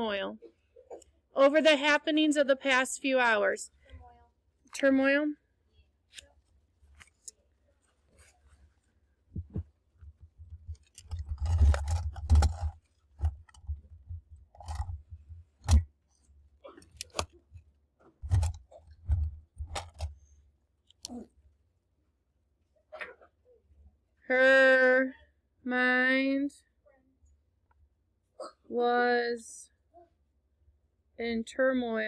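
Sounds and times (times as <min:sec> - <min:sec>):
paper rustling: 0:06.4 - 0:09.6, 0:10.4 - 0:13.8.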